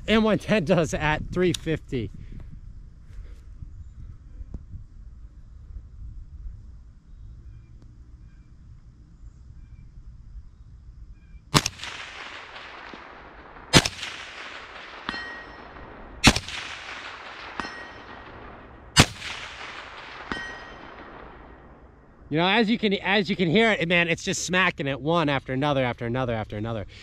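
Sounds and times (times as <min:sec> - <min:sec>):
rifle shots: 0:11.5 - 0:22.1
bullet hitting steel target: 0:13.7 - 0:21.6.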